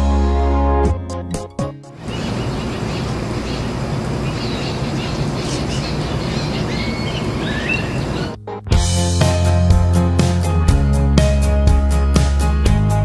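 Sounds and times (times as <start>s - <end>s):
bird chirps: 2.0s - 8.4s.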